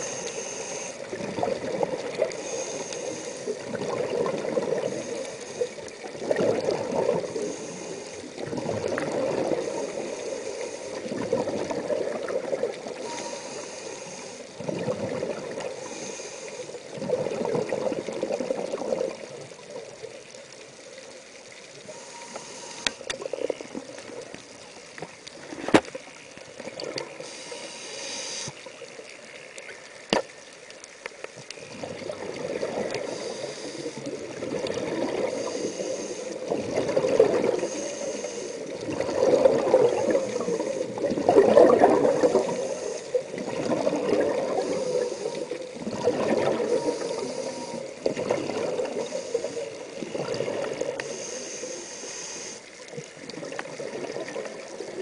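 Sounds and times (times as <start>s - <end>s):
regulator inhale hiss: 0.0s - 1.2s, 2.2s - 3.8s, 4.5s - 6.1s, 7.2s - 8.4s, 9.4s - 11.2s, 12.8s - 14.7s, 15.5s - 17.0s, 21.8s - 23.6s, 27.1s - 29.0s, 32.8s - 34.4s, 35.1s - 39.0s, 39.9s - 41.0s, 42.0s - 43.6s, 44.3s - 45.8s, 46.4s - 53.0s
exhaust bubbling underwater: 1.1s - 2.4s, 3.5s - 5.0s, 6.0s - 7.5s, 8.2s - 9.8s, 11.0s - 13.0s, 14.6s - 15.8s, 16.8s - 20.0s, 31.7s - 33.2s, 34.0s - 35.6s, 36.4s - 37.8s, 38.7s - 49.2s, 49.9s - 51.0s.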